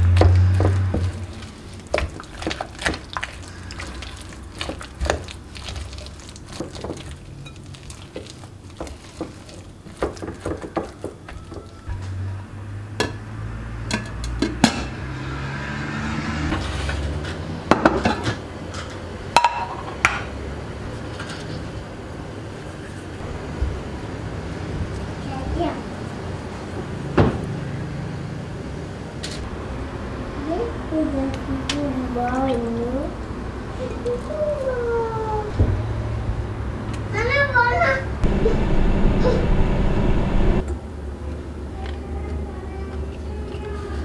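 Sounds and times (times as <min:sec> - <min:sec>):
spatula stirring mashed potato: 0:00.2 - 0:11.8.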